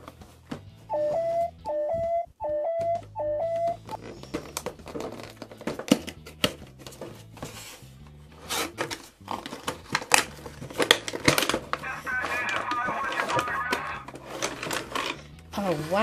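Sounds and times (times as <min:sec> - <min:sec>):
quiet background music: 0:00.0 - 0:16.0
cardboard packaging scraping: 0:04.0 - 0:11.8, 0:14.0 - 0:16.0
cardboard ripping and clicking: 0:08.4 - 0:11.8.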